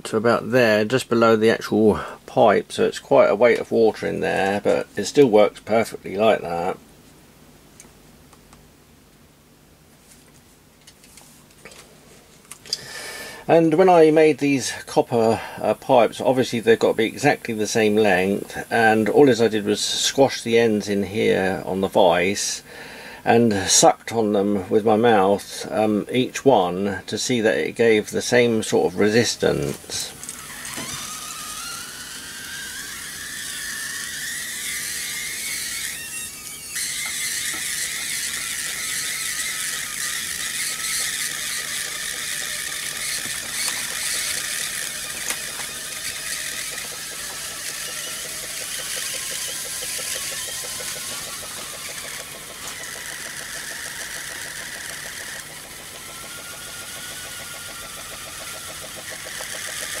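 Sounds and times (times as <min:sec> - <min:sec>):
steam hissing and whistling: 0:28.2 - 1:00.0.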